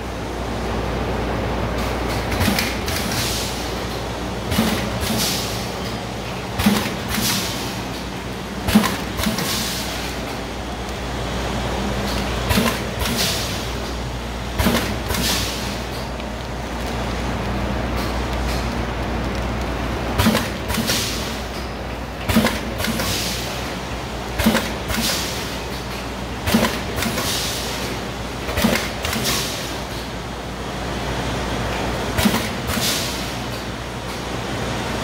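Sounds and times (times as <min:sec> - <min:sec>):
machine motor hum: 0:00.0 - 0:29.9
pneumatic air hiss: 0:04.5 - 0:05.6, 0:08.7 - 0:10.3, 0:14.6 - 0:16.0, 0:20.2 - 0:21.4, 0:22.3 - 0:23.6, 0:32.2 - 0:33.6
machine jaws knocking: 0:26.4 - 0:27.2.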